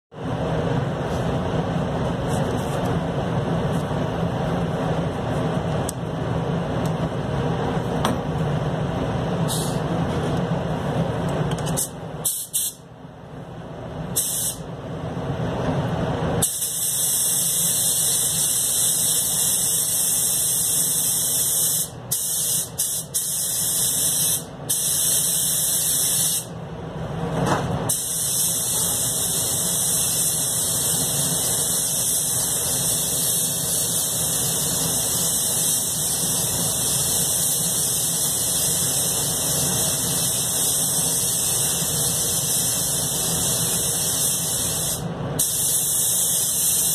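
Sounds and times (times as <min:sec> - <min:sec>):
air spray gun hissing: 0:09.5 - 0:09.8, 0:11.8 - 0:12.8, 0:14.2 - 0:14.6, 0:16.4 - 0:26.5, 0:27.9 - 0:46.9.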